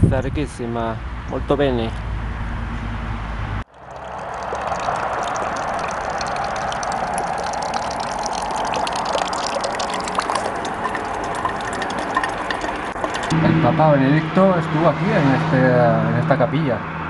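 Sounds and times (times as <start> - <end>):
water splashing into bottle: 3.7 - 13.3.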